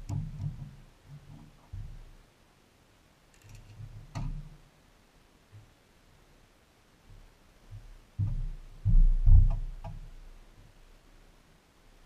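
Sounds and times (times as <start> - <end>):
thumps on wooden deck: 7.8 - 10.1.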